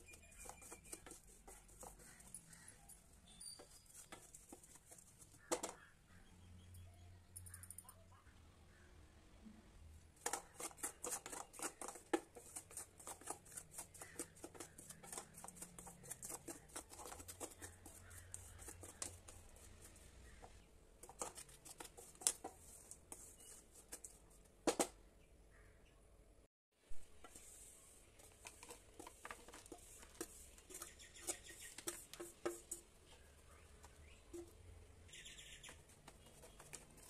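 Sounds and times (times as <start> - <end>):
wooden spatula scraping steel pan: 10.2 - 24.1.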